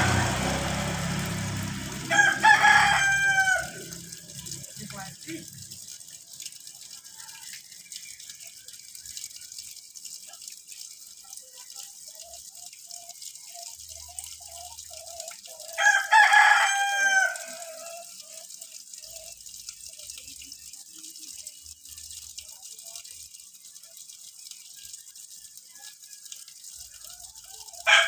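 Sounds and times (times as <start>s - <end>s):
rooster crowing: 0.0s - 4.3s, 15.7s - 18.2s, 27.5s - 28.0s.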